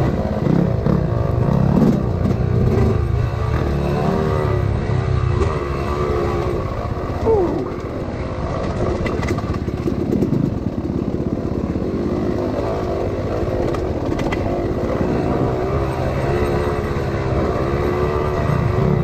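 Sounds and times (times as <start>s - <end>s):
dirt bike engine revving: 0.0s - 8.8s, 11.3s - 19.0s.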